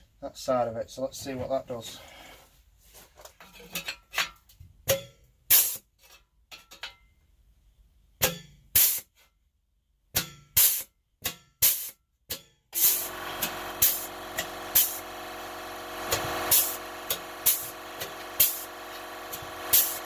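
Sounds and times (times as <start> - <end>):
pneumatic tool air hiss: 8.8 - 9.1, 10.6 - 10.9, 11.6 - 12.0, 12.8 - 15.2, 16.0 - 20.0
air compressor running: 12.8 - 20.0.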